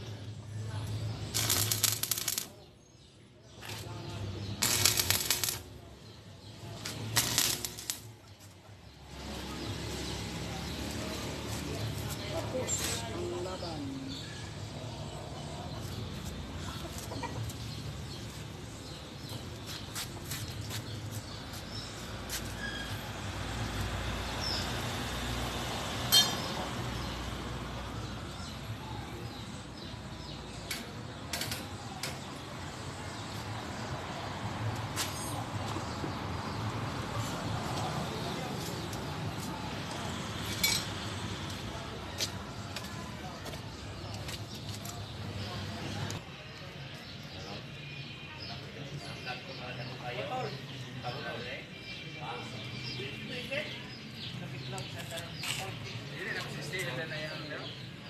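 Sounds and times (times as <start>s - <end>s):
welding arc crackling: 1.0s - 2.6s, 4.6s - 5.8s, 6.5s - 8.4s.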